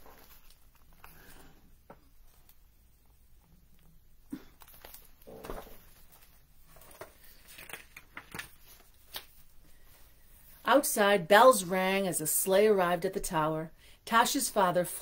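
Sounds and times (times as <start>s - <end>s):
paper rustle: 0.0s - 1.4s, 4.6s - 9.9s.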